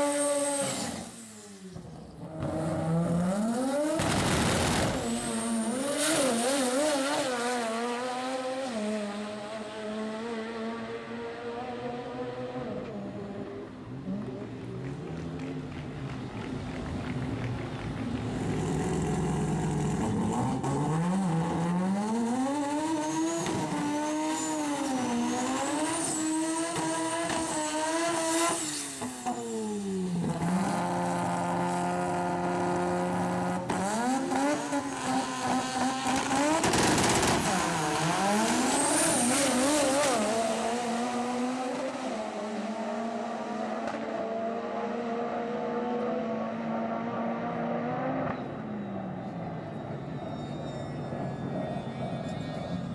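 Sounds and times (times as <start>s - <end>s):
rotary engine revving: 0.0s - 9.3s, 16.4s - 43.2s.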